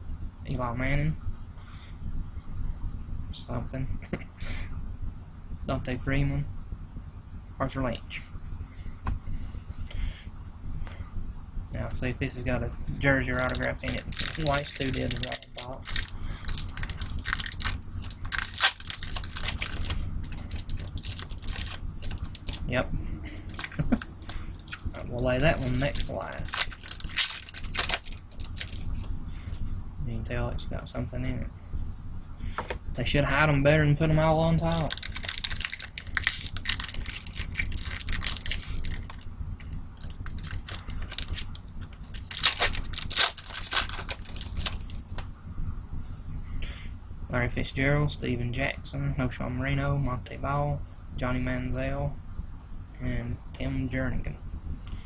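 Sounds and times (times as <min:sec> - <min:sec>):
foil wrapper crinkling: 0:13.3 - 0:28.9, 0:34.6 - 0:39.3, 0:40.0 - 0:45.2.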